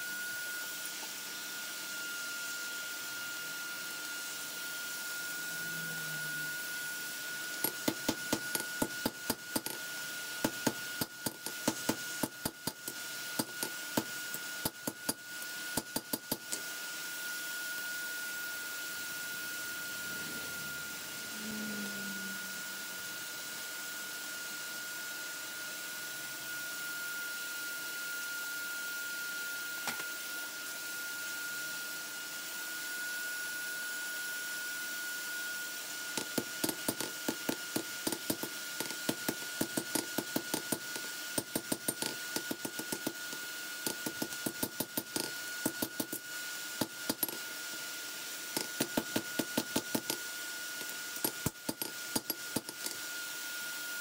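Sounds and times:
high-pitched whine: 0.0s - 15.5s, 17.8s - 24.6s.

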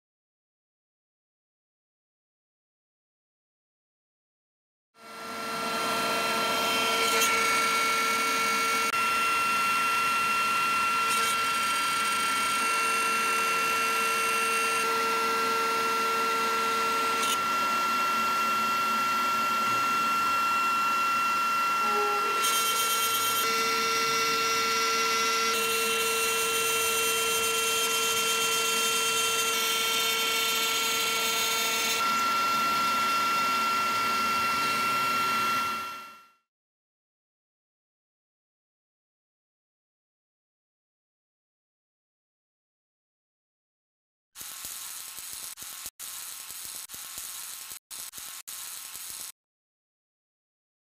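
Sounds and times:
router spindle whine: 5.0s - 36.4s
milling cutting noise: 21.7s - 24.4s.

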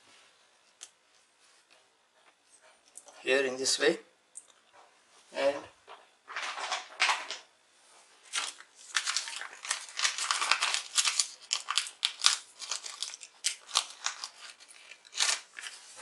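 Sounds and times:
crinkling and crackling handling noise: 8.2s - 16.0s.

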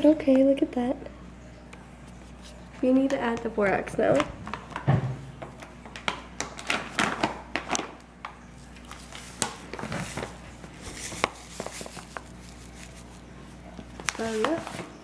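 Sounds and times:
plastic bag crinkling: 8.6s - 15.0s.

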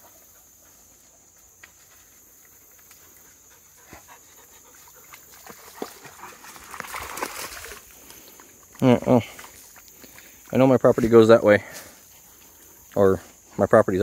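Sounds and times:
dogs panting: 0.0s - 1.4s, 2.3s - 7.0s
splashes in shallow water: 4.8s - 8.2s.

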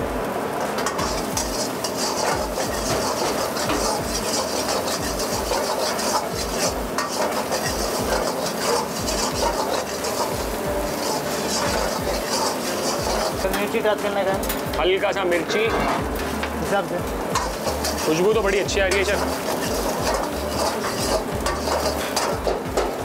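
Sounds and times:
oil sizzling: 0.0s - 23.0s
ladle scraping metal wok: 0.6s - 14.8s, 17.2s - 23.0s.

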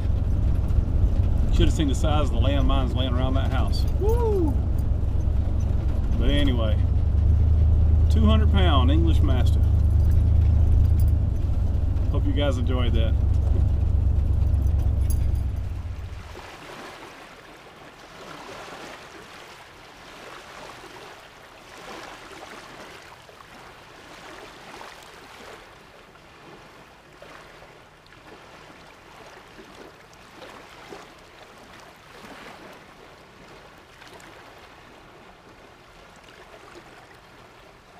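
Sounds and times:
small waves lapping on sand: 15.7s - 37.9s.

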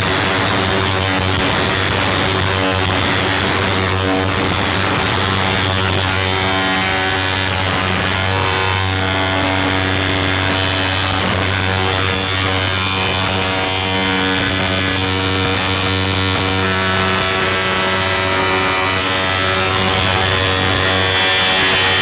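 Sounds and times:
distorted noise music: 0.0s - 22.0s
low hum: 0.0s - 22.0s.

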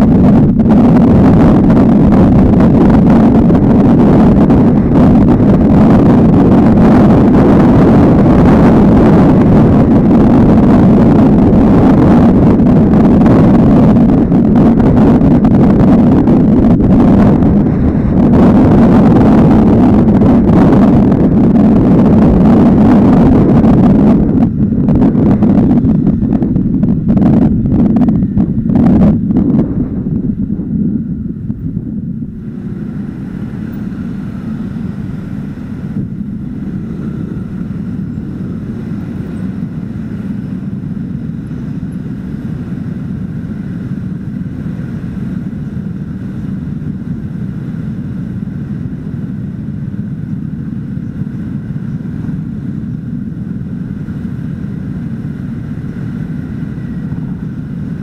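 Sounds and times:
wind noise on microphone: 0.0s - 58.0s
scooter engines idling: 32.4s - 58.0s.

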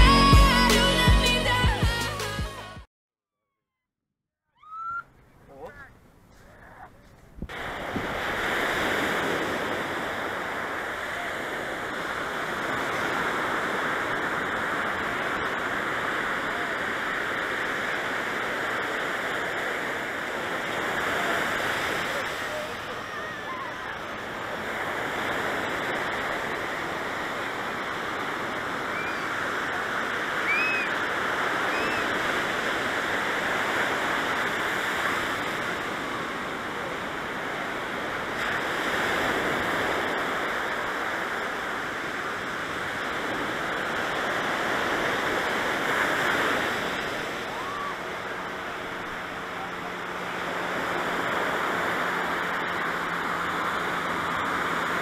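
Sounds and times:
faint high chirps: 4.5s - 5.2s
ocean surf washing onto beach: 7.5s - 55.0s.

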